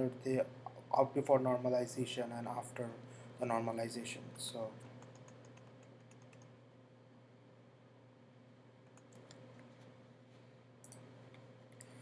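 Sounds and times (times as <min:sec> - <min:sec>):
low steady hum: 0:00.0 - 0:12.0
computer keyboard clicks: 0:04.9 - 0:06.5, 0:08.9 - 0:09.4.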